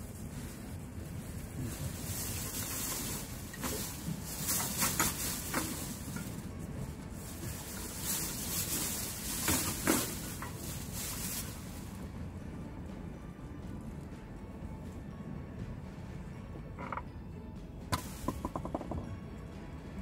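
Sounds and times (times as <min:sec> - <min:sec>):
plastic bag rustling: 0:00.0 - 0:12.1
wind and surf rumble: 0:00.0 - 0:16.9.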